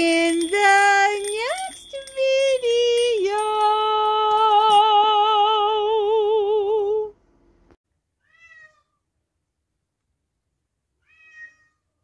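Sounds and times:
cat meow: 8.2s - 9.0s, 11.0s - 11.8s.

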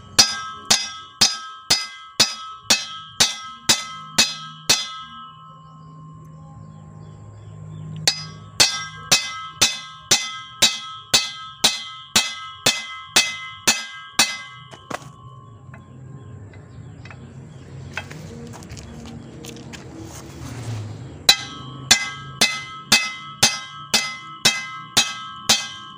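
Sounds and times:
hammer striking steel: 0.0s - 5.8s, 8.0s - 15.8s, 21.2s - 25.9s.

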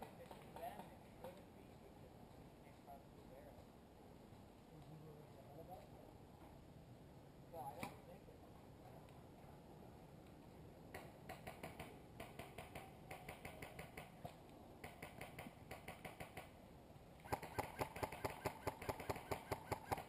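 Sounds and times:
airsoft guns firing: 14.8s - 16.5s, 17.2s - 20.0s.

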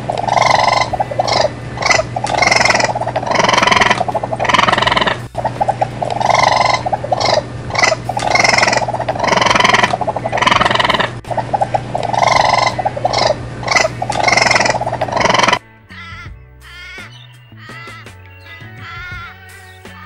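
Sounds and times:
steady low hum: 0.0s - 15.6s
lemur calls: 0.0s - 20.0s.

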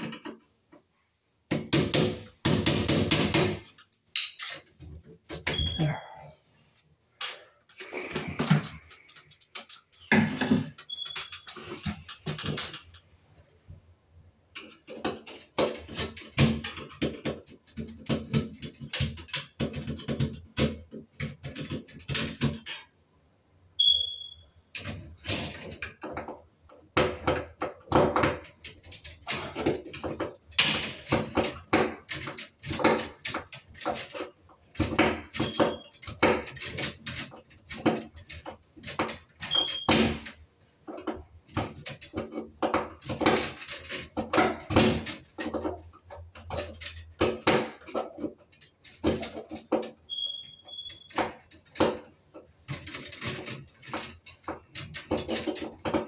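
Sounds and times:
clicking and rattling of wires: 0.0s - 0.9s, 1.5s - 6.0s, 6.6s - 13.9s, 14.5s - 23.0s, 24.7s - 56.0s
hand tool tapping on sheet metal: 1.5s - 5.8s
high squeaks: 10.8s - 11.6s, 23.8s - 24.4s, 50.1s - 51.2s.

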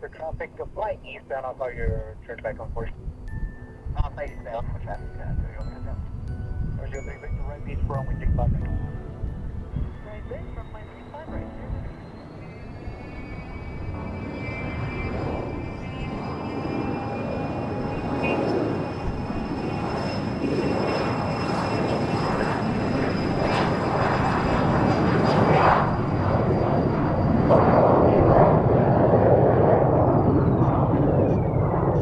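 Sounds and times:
jet engines whining: 6.6s - 32.0s.

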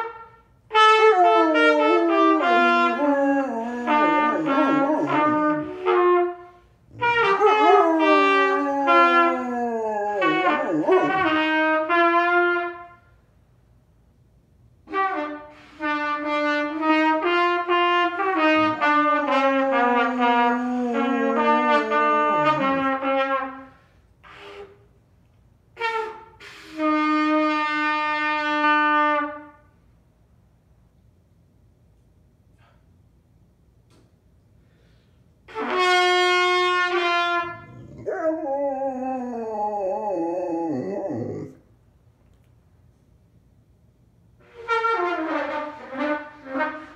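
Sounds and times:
wavering trumpet notes: 0.0s - 13.0s, 14.9s - 24.8s, 25.8s - 29.5s, 35.5s - 41.2s.

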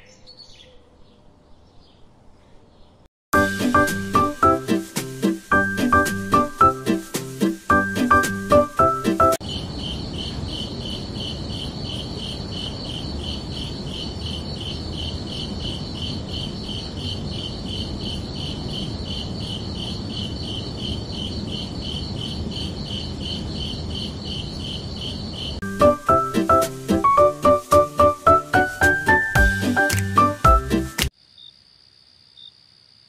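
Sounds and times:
crickets chirping: 9.4s - 26.3s, 31.1s - 33.0s.

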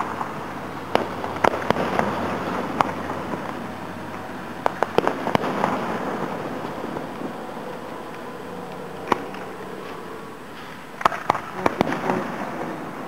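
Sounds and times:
distant fireworks bangs: 0.0s - 13.0s
steady background hiss: 0.0s - 13.0s.

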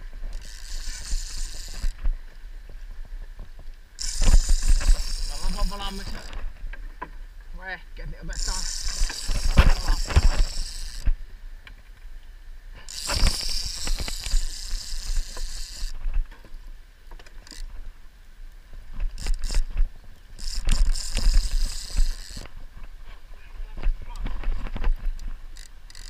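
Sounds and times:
fishing reel whirring: 0.2s - 2.0s, 4.0s - 6.5s, 8.2s - 11.2s, 12.8s - 16.0s, 17.4s - 17.7s, 19.1s - 19.8s, 20.4s - 22.6s, 25.1s - 26.0s.

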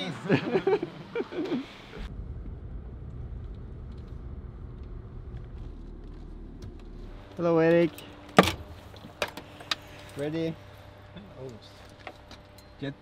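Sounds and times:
car engine rumble: 0.4s - 12.6s
road noise inside car: 1.8s - 9.3s.

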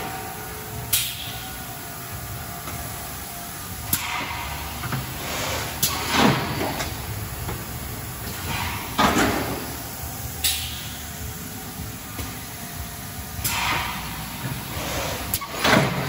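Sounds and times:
factory machinery humming: 0.0s - 16.0s.

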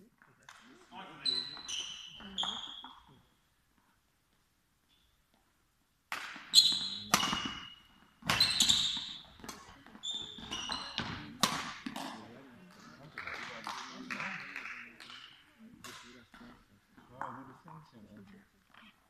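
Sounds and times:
sport shoes squeaking: 1.0s - 3.4s, 6.4s - 11.6s
rackets striking shuttlecock: 6.1s - 12.2s.

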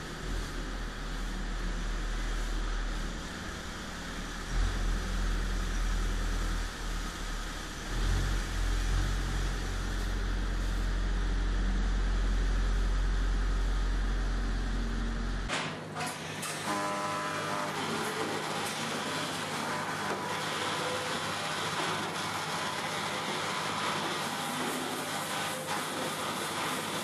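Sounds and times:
loader engine running: 0.0s - 15.5s.

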